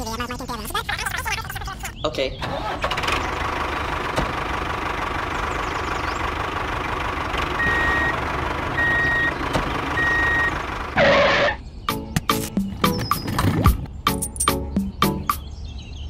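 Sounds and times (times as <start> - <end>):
tractor engine running: 2.4 - 11.6
reversing beeps: 7.6 - 8.1, 8.8 - 9.3, 10.0 - 10.6.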